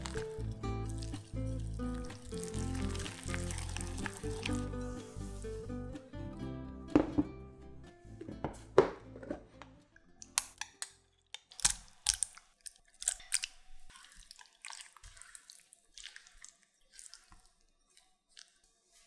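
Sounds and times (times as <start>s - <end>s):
sticky batter squelching: 0.0s - 5.8s, 11.3s - 19.0s.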